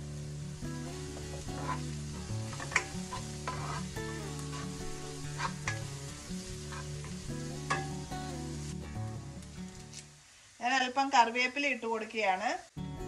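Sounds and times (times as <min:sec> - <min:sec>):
food sizzling in hot oil: 0:00.0 - 0:13.0
spatula scraping a wok: 0:01.0 - 0:08.0.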